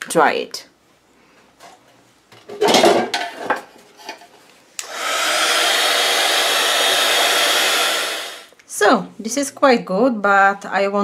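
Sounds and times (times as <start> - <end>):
heat gun fan blowing air: 4.8 - 8.5.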